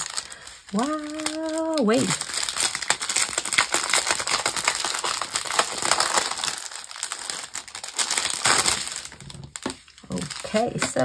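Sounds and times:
plastic bags crinkling: 0.0s - 11.0s.

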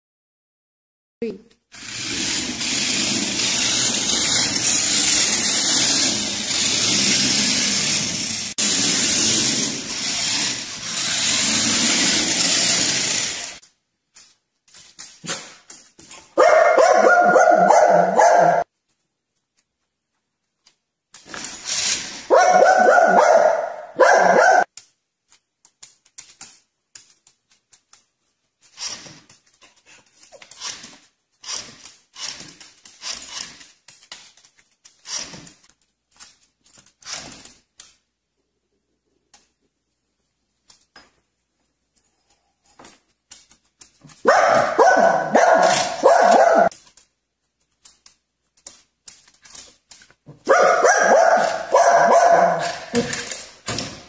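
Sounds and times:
small dog barking: 16.4s - 18.6s, 22.3s - 24.7s, 44.2s - 46.7s, 50.4s - 53.0s.

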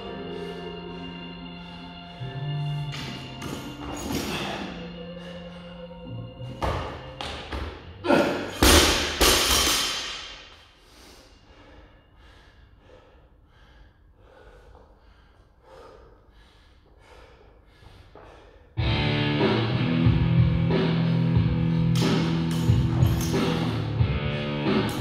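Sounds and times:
heavy breathing: 0.0s - 3.4s, 4.1s - 6.4s, 10.4s - 19.0s, 20.7s - 24.8s.

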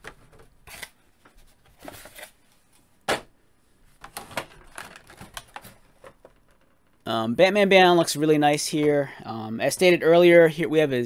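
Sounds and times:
hard plastic parts clicking: 4.0s - 7.0s.

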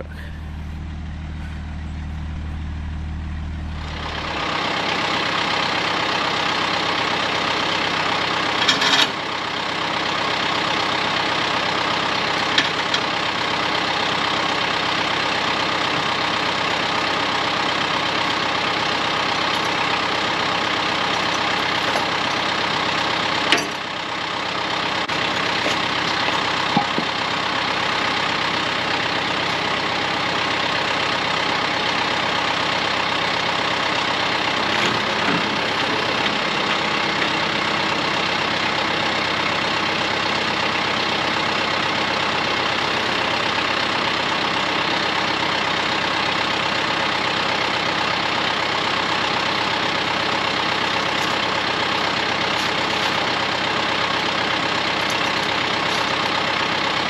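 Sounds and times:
vehicle engine running: 0.0s - 57.0s
knocks and rattles: 25.1s - 27.3s.

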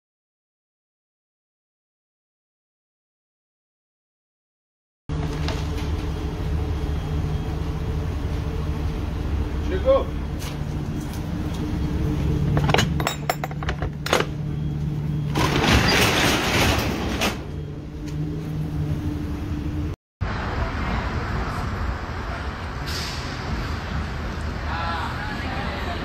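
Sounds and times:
vehicle engine idling: 5.1s - 13.0s
street background noise: 5.1s - 26.0s.

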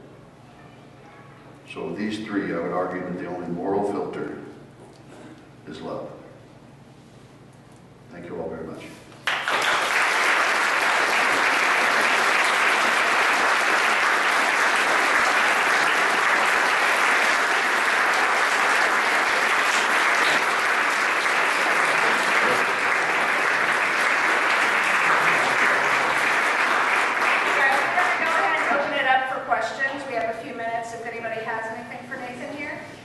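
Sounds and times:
audience applauding: 9.2s - 29.1s.

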